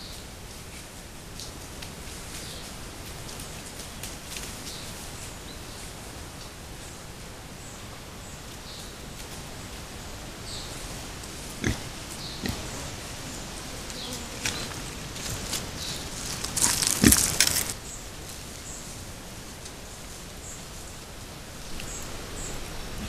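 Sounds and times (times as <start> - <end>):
boar moving through earth: 9.2 - 19.6.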